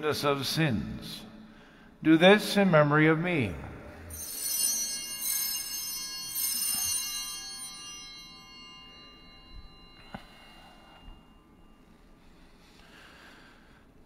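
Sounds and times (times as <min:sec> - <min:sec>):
altar bells ringing: 0:03.4 - 0:13.9.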